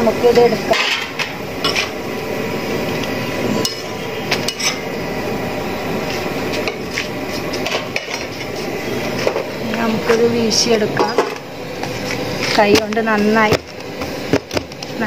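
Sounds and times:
metal utensil clinking on griddle: 0:04.5 - 0:04.8.

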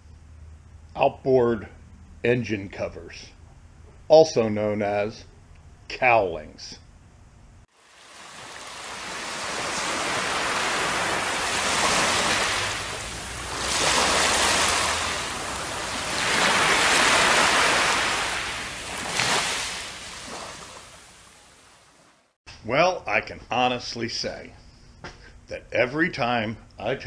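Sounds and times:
ocean surf on a beach: 0:07.8 - 0:22.2.

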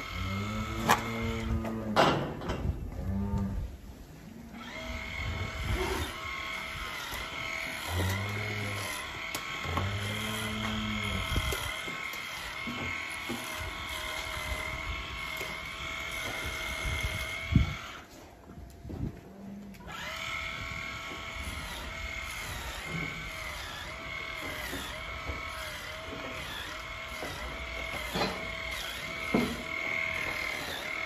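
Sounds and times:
electric tool whining: 0:00.0 - 0:01.9, 0:04.6 - 0:18.2, 0:19.7 - 0:31.0
cows mooing: 0:00.0 - 0:02.3, 0:04.5 - 0:17.3.

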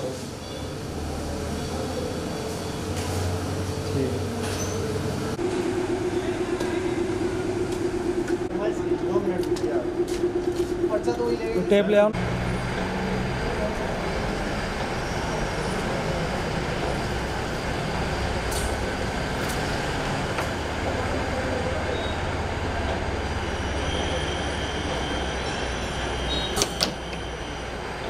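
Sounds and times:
cutting machine humming: 0:02.8 - 0:14.1.

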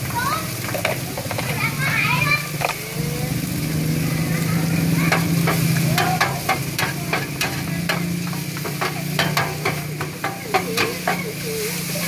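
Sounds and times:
noodles sizzling in pan: 0:00.0 - 0:12.0
metal utensils scraping pan: 0:00.6 - 0:03.0, 0:05.0 - 0:12.0.

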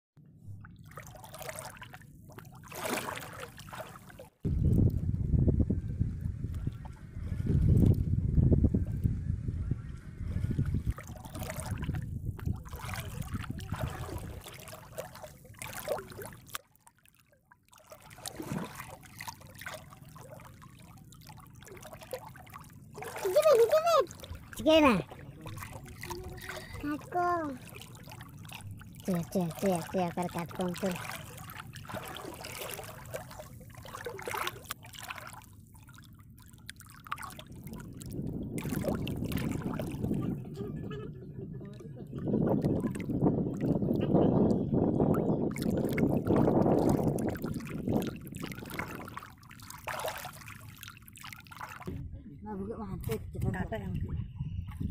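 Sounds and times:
water trickling and splashing: 0:00.5 - 0:09.1, 0:09.8 - 0:54.9
wind rumble on microphone: 0:04.4 - 0:14.6, 0:37.4 - 0:49.2, 0:51.9 - 0:54.9.

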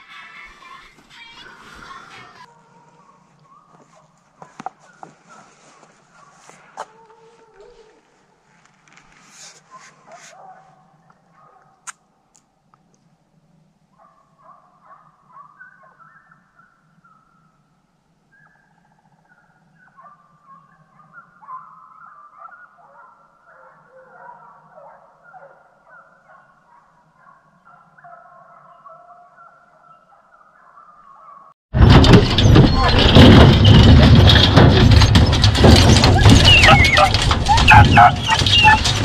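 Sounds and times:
distant hounds baying: 0:02.4 - 0:08.1, 0:09.4 - 0:11.8, 0:14.0 - 0:17.5, 0:18.3 - 0:31.5, 0:32.6 - 0:39.0.

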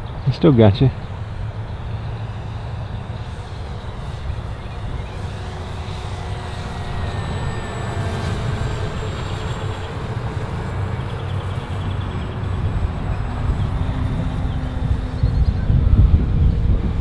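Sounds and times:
wind rumble on microphone: 0:00.0 - 0:17.0
model plane motor whining: 0:00.7 - 0:17.0.

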